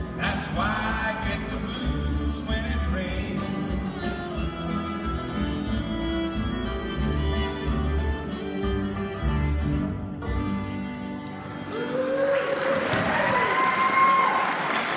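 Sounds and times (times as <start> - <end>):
upright bass: 0.0 - 11.6
guitar: 0.0 - 14.4
fiddle: 1.9 - 12.0
applause: 11.2 - 14.9.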